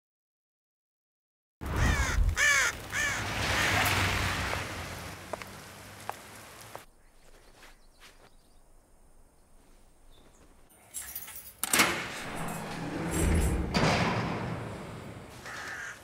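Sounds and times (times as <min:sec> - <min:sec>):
crow cawing: 0:01.7 - 0:04.7, 0:15.3 - 0:16.0.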